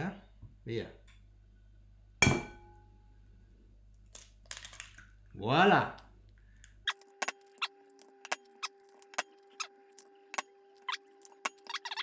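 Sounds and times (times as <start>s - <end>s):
eggshells cracking on bowl: 4.0s - 5.2s.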